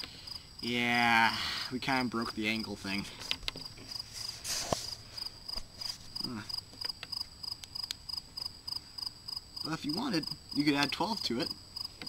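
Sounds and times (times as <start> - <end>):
cricket chirping: 0.0 - 12.0
brief rustle: 3.2 - 5.0.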